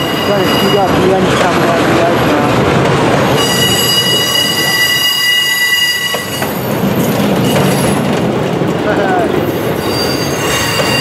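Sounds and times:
freight train wheels rumbling: 0:00.0 - 0:11.0
high-pitched wheel squeal: 0:03.4 - 0:08.0, 0:09.5 - 0:11.0.

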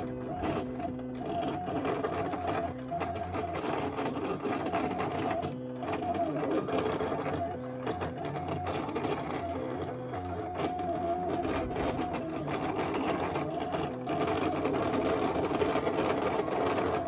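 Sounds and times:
cutting plotter motors whirring: 0:00.0 - 0:17.0.

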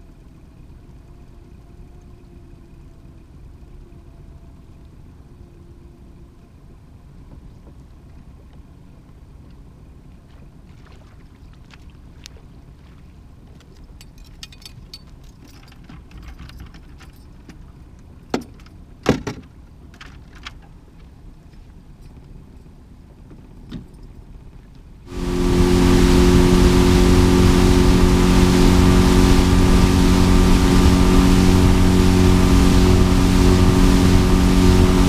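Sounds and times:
boat low rumble: 0:00.0 - 0:35.0
sharp knocks against boat: 0:18.3 - 0:19.5.

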